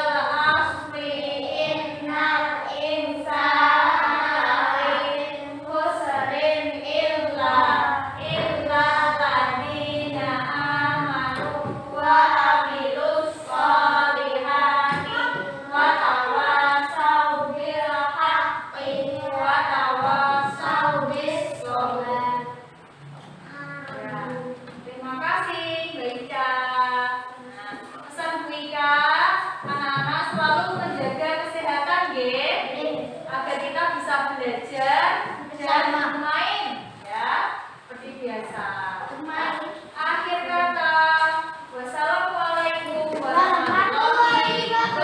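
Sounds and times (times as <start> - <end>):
children singing in unison: 0.0 - 22.8, 42.8 - 45.0.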